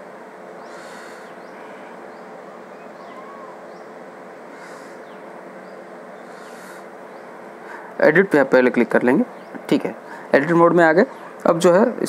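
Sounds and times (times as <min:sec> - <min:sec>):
background hiss: 0:00.0 - 0:12.0
soft puffs of hiss: 0:00.4 - 0:02.4, 0:03.6 - 0:08.0
faint high chirps: 0:00.6 - 0:04.0.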